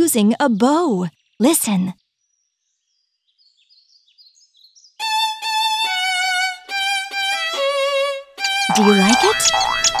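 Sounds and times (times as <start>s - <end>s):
bowed violin playing: 5.0s - 10.0s
faint high chirping: 8.5s - 10.0s.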